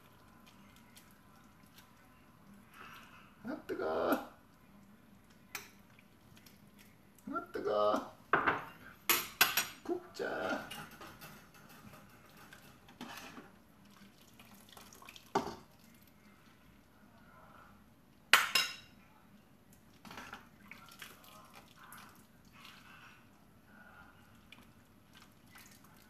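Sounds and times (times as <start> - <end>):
utensils clinking against pot: 10.5 - 13.5.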